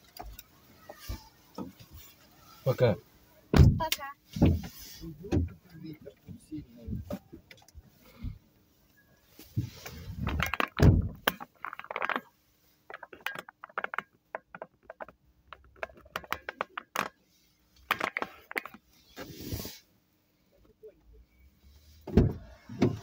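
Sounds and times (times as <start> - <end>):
rustling: 0.0 - 20.5
small clicks and knocks: 9.6 - 17.2, 17.8 - 18.9
car door shutting: 22.0 - 23.0.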